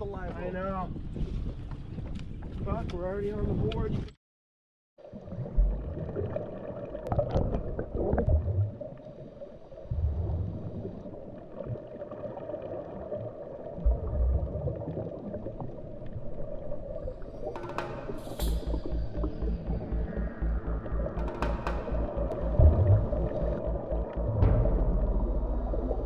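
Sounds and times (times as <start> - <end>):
muffled underwater sloshing: 5.0 - 26.0
steady low hum: 17.9 - 26.0
music with drum beat: 21.1 - 23.6.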